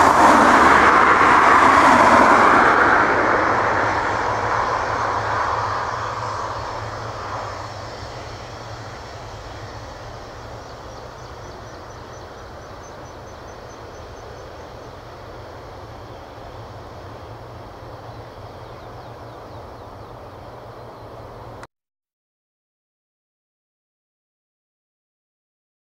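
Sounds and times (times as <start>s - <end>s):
jet engine hum: 0.0s - 21.7s.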